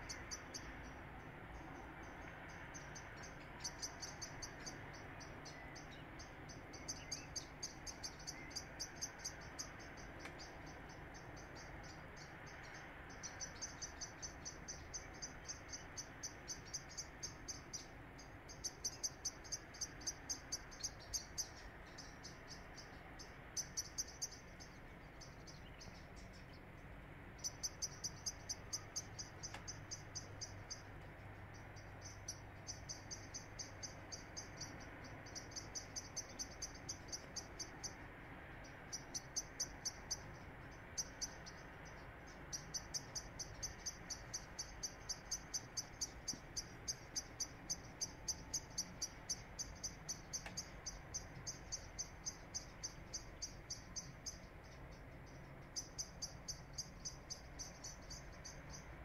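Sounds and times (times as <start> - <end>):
small animal chirping: 27.4 - 59.0.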